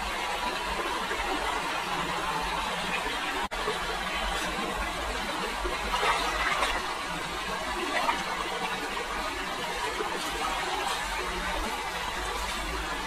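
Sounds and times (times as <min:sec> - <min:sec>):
stream water running: 0:00.0 - 0:13.0
water splashes: 0:02.7 - 0:13.0.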